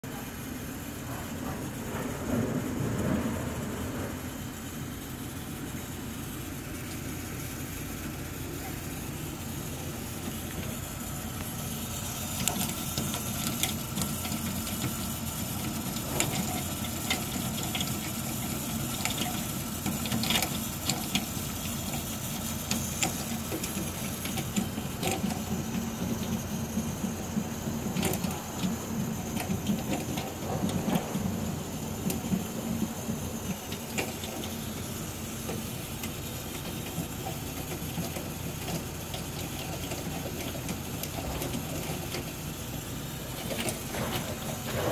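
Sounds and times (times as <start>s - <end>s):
boiler humming: 0.0s - 44.9s
heat exchanger knocks and crackles: 1.0s - 5.0s, 8.6s - 44.9s.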